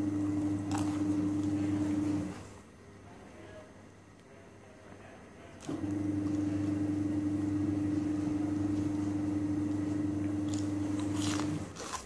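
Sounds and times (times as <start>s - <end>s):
machine hum: 0.0s - 3.0s, 5.6s - 12.0s.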